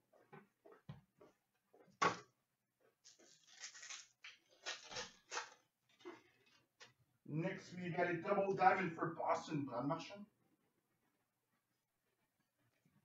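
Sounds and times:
card pack crackle: 3.1s - 5.6s
cards rustling and sliding: 3.1s - 5.6s.

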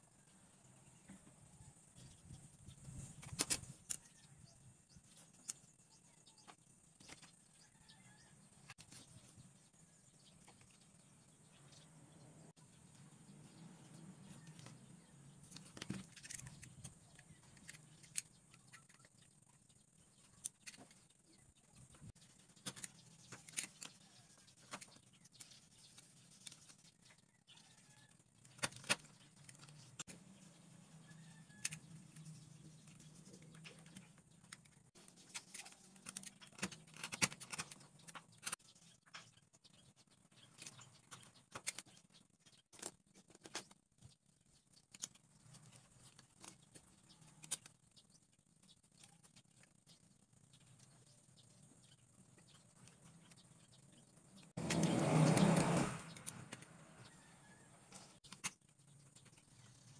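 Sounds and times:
craft knife cutting wooden sticks: 54.6s - 56.8s.

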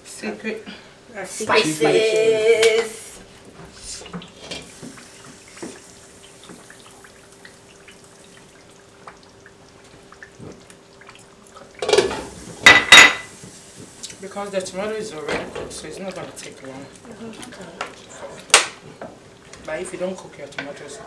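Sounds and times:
stew bubbling in pot: 3.2s - 21.0s.

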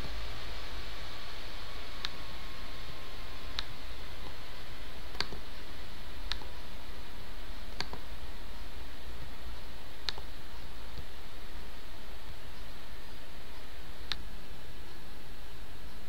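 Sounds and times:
steady hiss and low hum: 0.0s - 16.0s
mouse buttons clicking: 2.0s - 2.2s, 5.1s - 5.5s, 6.2s - 6.6s, 7.7s - 8.1s, 10.0s - 11.1s, 14.0s - 14.3s.

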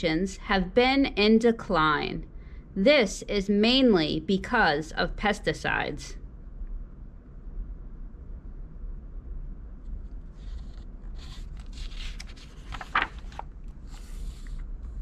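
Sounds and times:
book page turning: 9.9s - 15.0s
paper flapping: 10.3s - 14.6s.

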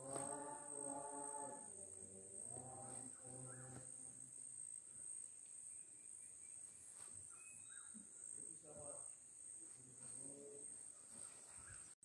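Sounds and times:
distant choir singing: 0.0s - 4.8s
crickets trilling: 0.0s - 11.9s.

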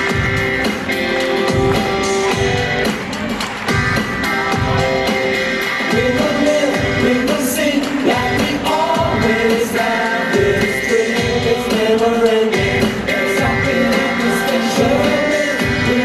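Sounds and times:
bass guitar: 0.0s - 16.0s
drum beat: 0.0s - 16.0s
person singing: 4.3s - 16.0s.

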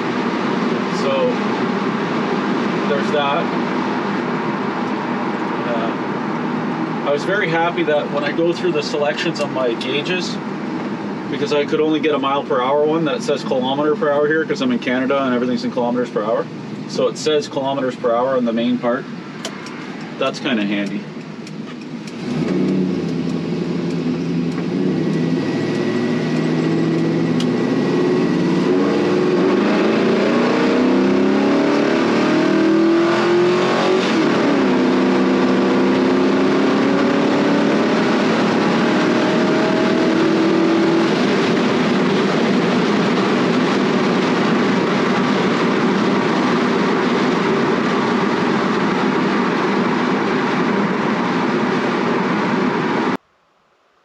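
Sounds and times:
truck engine accelerating: 19.3s - 53.2s.

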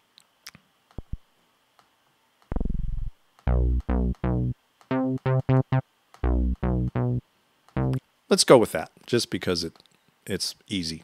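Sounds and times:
deep synth bass notes: 2.5s - 7.2s, 7.8s - 8.0s.

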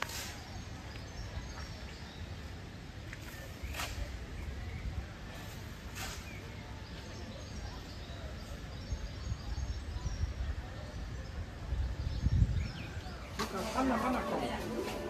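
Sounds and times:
wind rumble on microphone: 8.0s - 13.4s.

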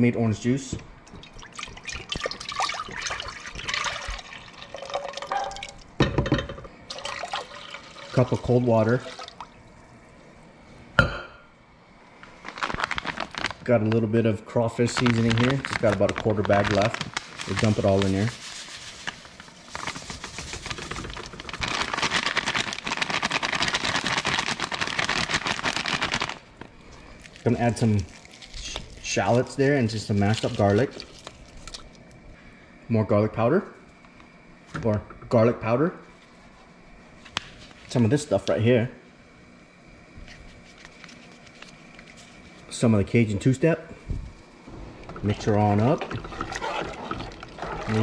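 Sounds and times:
juice pouring into a pot: 1.0s - 5.9s, 6.9s - 9.8s, 27.1s - 32.1s, 45.0s - 48.0s.

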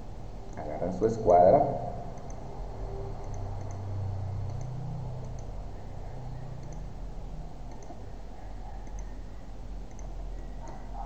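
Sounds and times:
low hum: 0.0s - 11.0s
computer mouse clicks: 2.2s - 2.4s, 3.2s - 5.6s, 6.4s - 6.9s, 7.7s - 8.0s, 8.8s - 9.2s, 9.8s - 10.9s.

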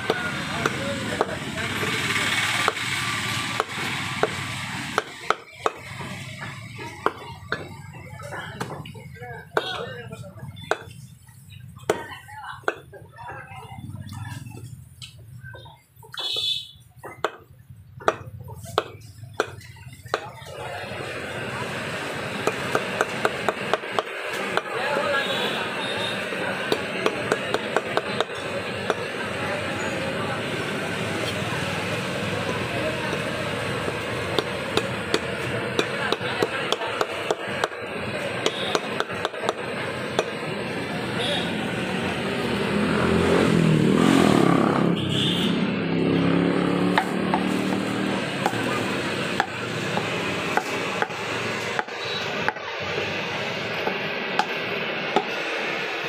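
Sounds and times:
steady background noise: 0.0s - 56.0s
knife chopping on wooden block: 18.0s - 20.3s.

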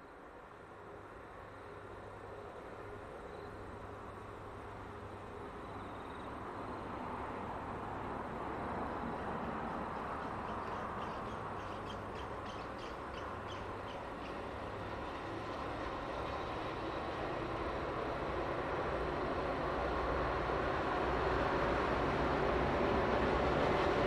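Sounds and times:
diesel locomotives droning: 0.0s - 24.0s.

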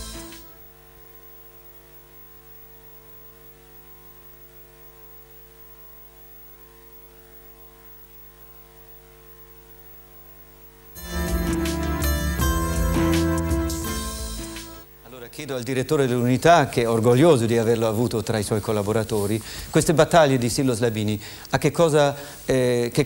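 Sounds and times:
electrical mains hum: 0.0s - 23.0s
guitar music: 11.0s - 14.9s.

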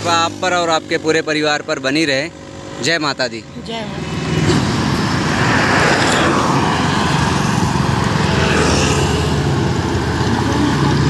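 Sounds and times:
low hum of traffic: 0.0s - 11.0s
vehicle passing by: 2.2s - 11.0s.

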